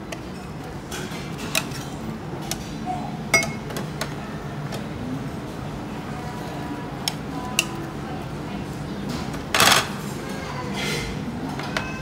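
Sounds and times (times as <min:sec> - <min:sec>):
metal ladle clinking on pot: 0:03.3 - 0:03.6.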